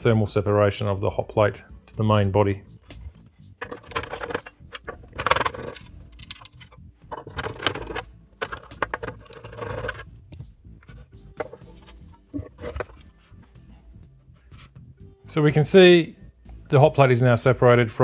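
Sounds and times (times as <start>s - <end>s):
metallic clicks and clinks: 3.5s - 10.0s
screws rattling out of metal case: 3.6s - 10.1s.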